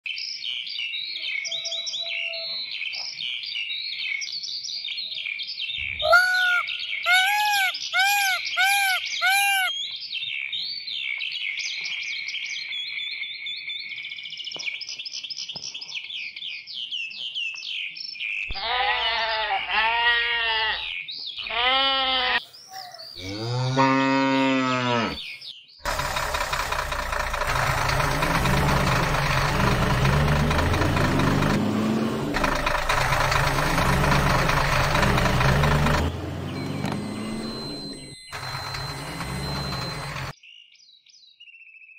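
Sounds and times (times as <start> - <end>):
birds chirping: 0.1 - 41.0
cattle mooing: 23.2 - 25.2
truck engine running: 25.9 - 40.4.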